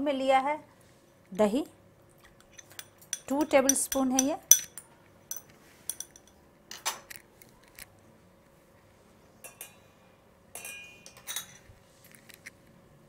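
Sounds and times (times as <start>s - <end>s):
glass bowls clinking: 2.4s - 6.4s.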